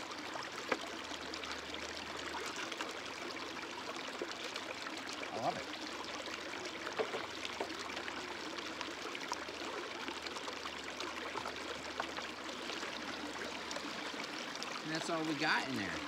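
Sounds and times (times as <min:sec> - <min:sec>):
creek water running over rocks: 0:00.0 - 0:16.0
knocks and splashes in water: 0:06.8 - 0:07.9.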